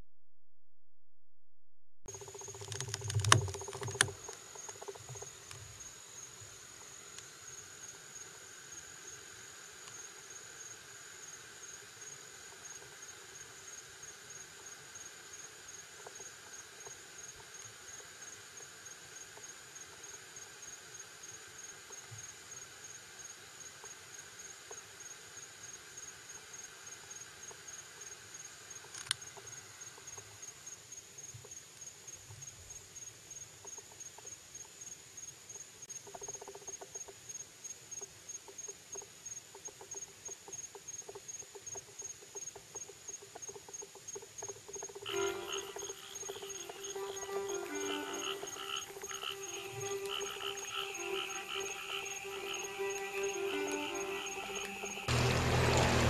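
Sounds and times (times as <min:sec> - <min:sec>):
sharp clicks and knocks: 0:02.1 - 0:05.6
crickets chirping: 0:02.1 - 0:56.0
low insect buzz: 0:02.1 - 0:56.0.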